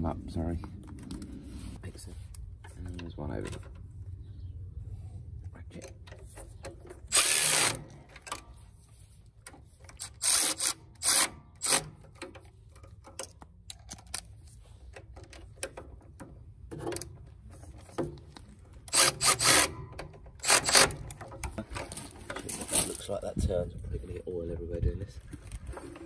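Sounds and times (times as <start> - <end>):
ratchet wrench clicking: 9.9 - 11.9, 18.8 - 19.8.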